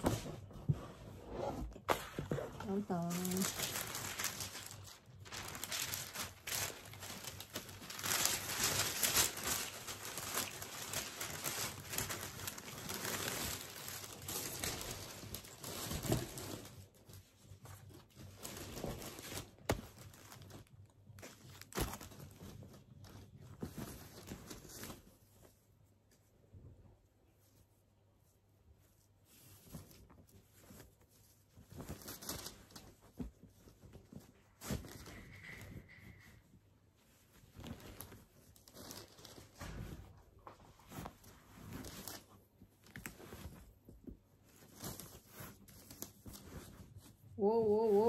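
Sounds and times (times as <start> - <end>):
cloth bag rustling: 0.0 - 17.2, 36.9 - 48.0
tissue paper crinkling: 0.0 - 26.3, 27.3 - 48.0.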